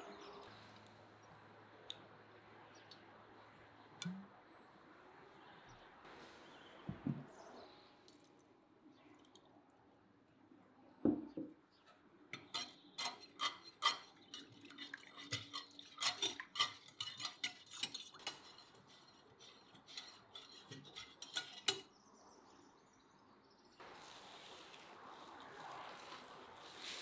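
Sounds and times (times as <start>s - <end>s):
utensil clinking against a dish: 12.4s - 21.9s.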